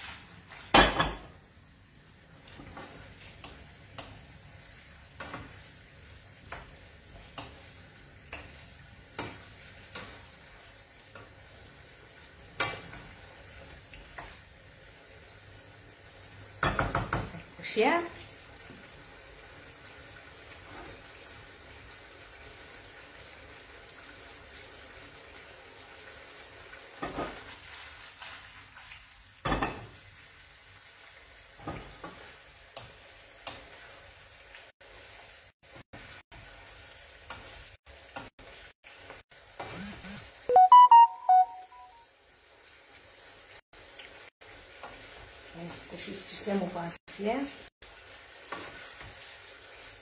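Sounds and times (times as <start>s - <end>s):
pasta sizzling in a frying pan: 0.0s - 40.5s, 42.0s - 50.0s
spoon knocking against pan: 16.6s - 17.4s.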